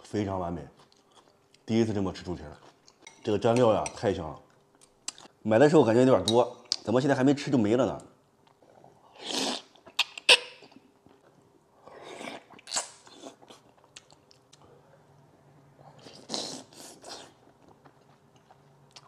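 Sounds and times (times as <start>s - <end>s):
person slurping food: 9.1s - 9.7s, 16.0s - 17.3s
chewing and lip-smacking: 12.2s - 14.6s.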